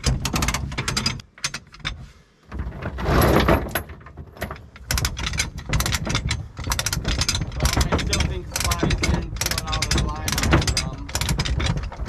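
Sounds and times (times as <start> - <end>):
low engine rumble: 4.4 - 12.0.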